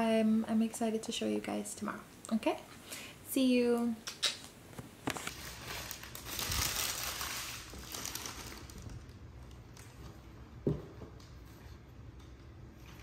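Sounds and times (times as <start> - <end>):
rustling handling noise: 4.8 - 10.4.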